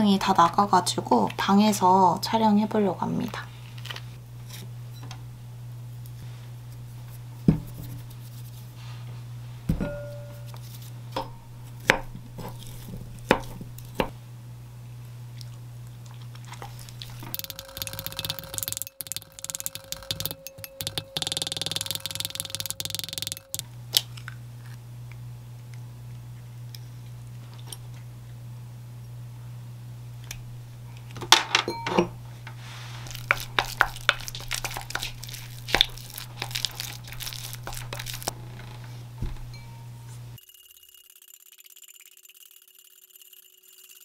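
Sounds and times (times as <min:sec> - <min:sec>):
steady low hum: 0:00.0 - 0:40.4
utensils knocking on glass bowl: 0:17.4 - 0:23.6
sweet potato mashed in bowl: 0:33.1 - 0:38.3.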